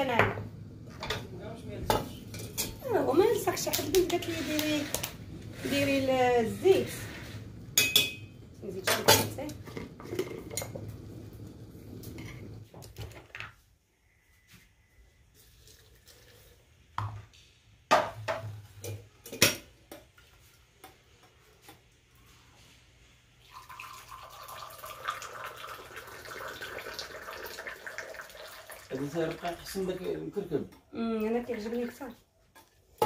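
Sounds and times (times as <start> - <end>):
metal pans and utensils knocking: 0.2 - 6.6, 7.7 - 10.9, 17.9 - 20.2.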